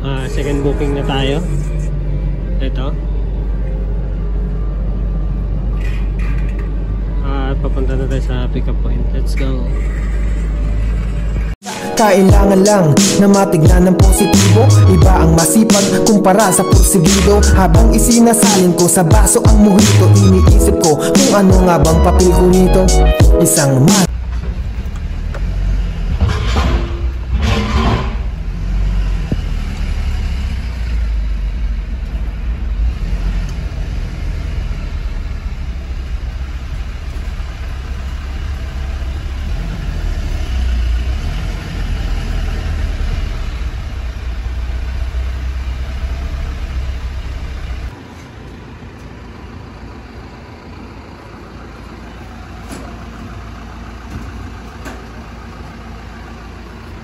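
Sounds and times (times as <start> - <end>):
steady background noise: 0.0 - 11.6
truck engine rumble: 0.0 - 57.0.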